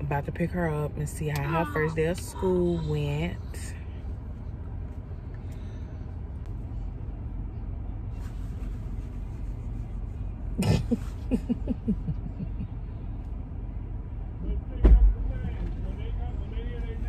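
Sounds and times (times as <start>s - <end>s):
car cabin rumble: 7.8s - 17.0s.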